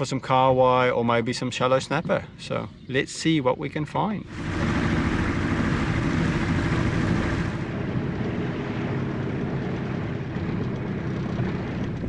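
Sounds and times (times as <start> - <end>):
outboard motor running: 4.3 - 12.0.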